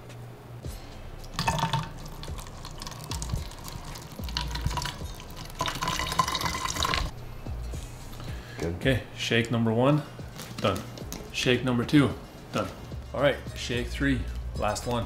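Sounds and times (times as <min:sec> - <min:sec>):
liquid sloshing in plastic bottles: 0:01.4 - 0:07.1.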